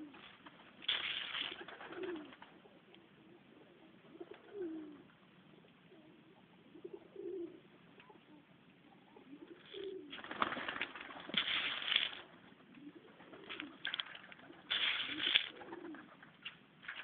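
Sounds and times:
pigeons cooing: 0:00.0 - 0:00.3, 0:01.4 - 0:10.8, 0:11.4 - 0:16.5
rustling noise: 0:00.0 - 0:02.6, 0:09.5 - 0:17.0.

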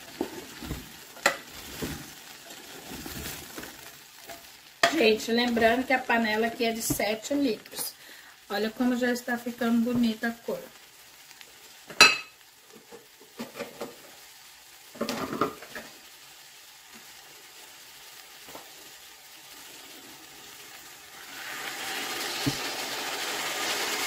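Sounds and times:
vegetables and meat sizzling in pot: 0:00.0 - 0:24.0
water pouring into pot: 0:19.4 - 0:24.0.

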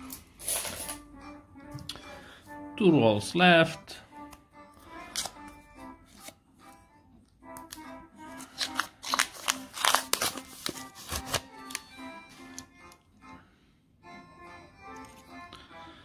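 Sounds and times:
background music: 0:00.0 - 0:16.0
paper wrapper tearing: 0:08.4 - 0:11.9.

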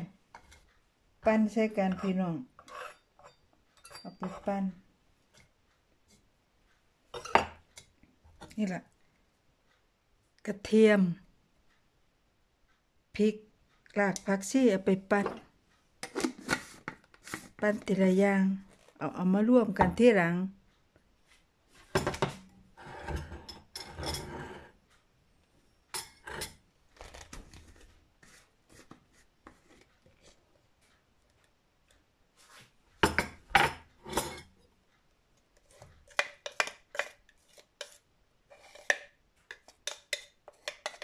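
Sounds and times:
spoon scraping glass jar: 0:01.8 - 0:04.6, 0:22.8 - 0:24.7, 0:26.0 - 0:27.2, 0:33.6 - 0:34.5, 0:35.7 - 0:41.0.

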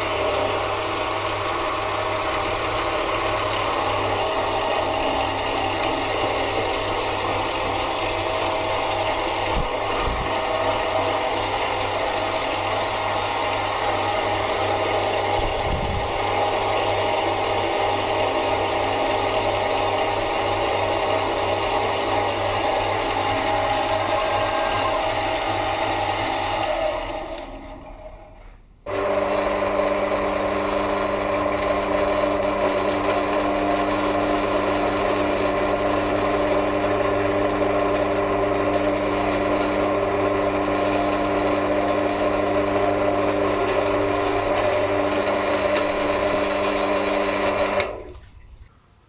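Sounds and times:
lathe motor humming and whining: 0:00.0 - 0:48.1.

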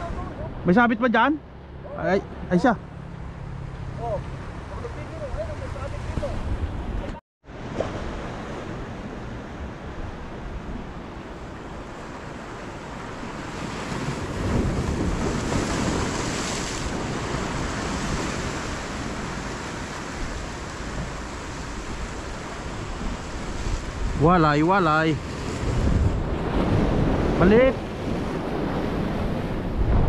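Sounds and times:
wind buffeting microphone: 0:08.0 - 0:30.0
surf breaking on beach: 0:11.9 - 0:30.0.

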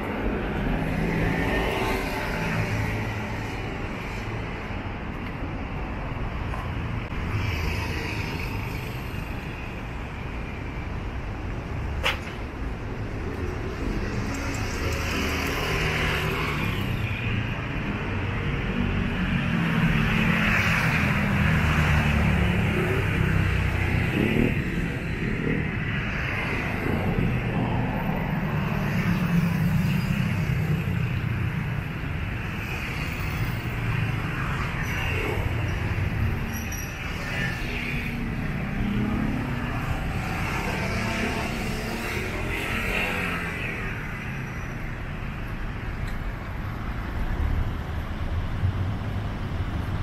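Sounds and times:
cars passing: 0:00.0 - 0:50.0.

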